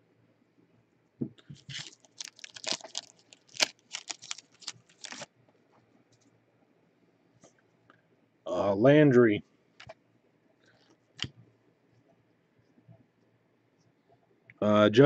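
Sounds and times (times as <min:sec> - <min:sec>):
foil wrapper tearing and crumpling: 0:01.5 - 0:05.3.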